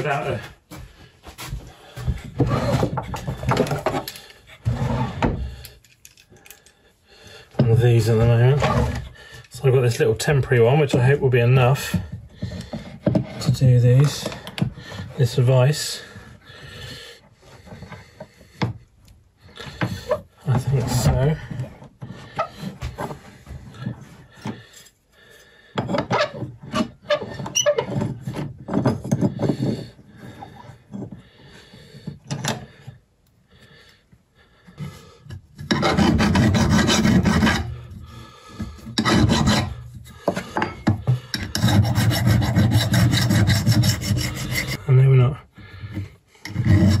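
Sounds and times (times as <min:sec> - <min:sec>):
file rasping on steel blade: 0:35.6 - 0:37.9, 0:38.9 - 0:40.2, 0:41.4 - 0:44.8, 0:46.4 - 0:47.0.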